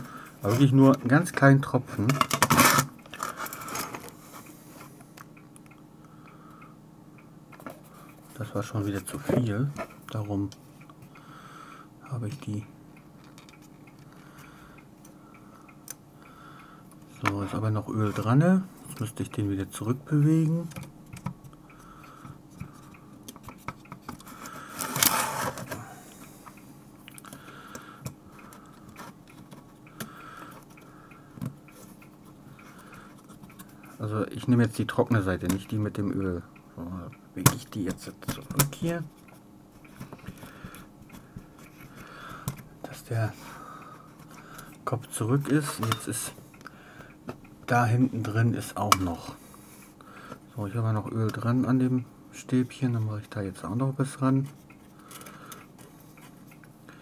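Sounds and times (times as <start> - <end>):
low steady hum: 0.0 - 57.0
small clicks and light scraping: 0.4 - 5.8, 12.2 - 16.0, 16.9 - 36.1, 52.7 - 56.8.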